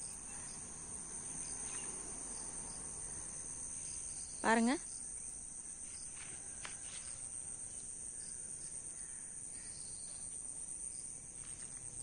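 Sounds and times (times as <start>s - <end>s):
faint outdoor background noise: 0.0s - 12.0s
insects chirring: 0.0s - 12.0s.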